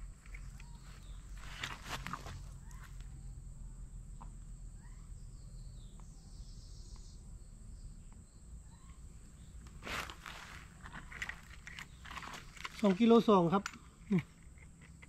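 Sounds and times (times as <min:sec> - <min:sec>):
bird chirps: 0:00.2 - 0:03.3, 0:04.6 - 0:09.6.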